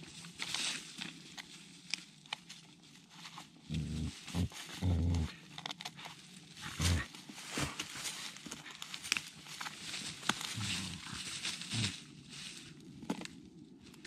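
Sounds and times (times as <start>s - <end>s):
leaves and twigs crackling: 0.0s - 14.0s
dog growling: 3.7s - 5.4s, 10.6s - 11.9s.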